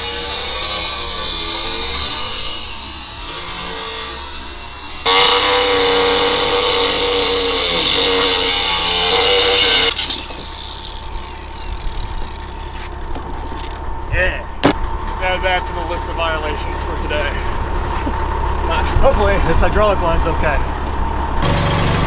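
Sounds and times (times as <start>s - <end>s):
angle grinder cutting steel: 0.0s - 13.0s.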